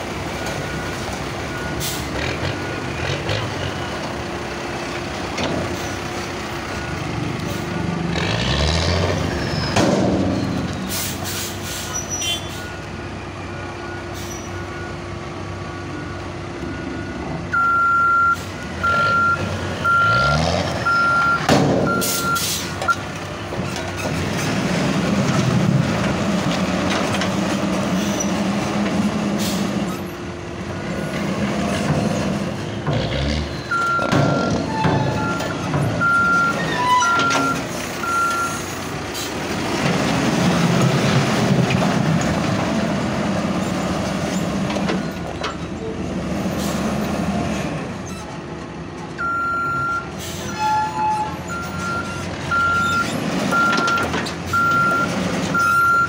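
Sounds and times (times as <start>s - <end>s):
diesel engine revving: 0.0s - 56.0s
reversing alarm beeps: 15.9s - 23.0s, 33.7s - 38.6s, 49.2s - 50.1s, 51.0s - 56.0s.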